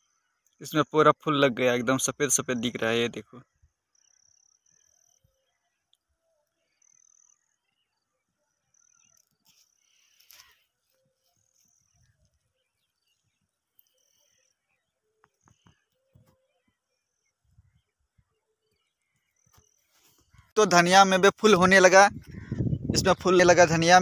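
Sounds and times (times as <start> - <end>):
faint high-pitched chirps: 2.4 - 20.6
brief rustle: 9.1 - 12.2.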